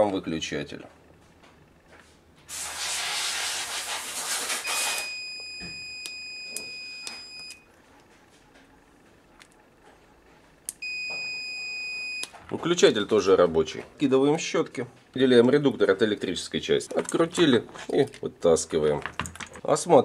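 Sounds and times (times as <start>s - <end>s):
rushing hiss: 2.5s - 5.0s
multimeter continuity beep: 4.6s - 7.7s, 10.7s - 12.4s.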